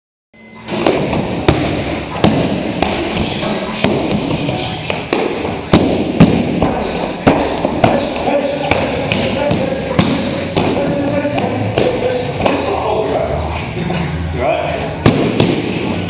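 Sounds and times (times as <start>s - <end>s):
gloved strikes on padded shield: 0.8s - 12.6s, 15.0s - 15.9s.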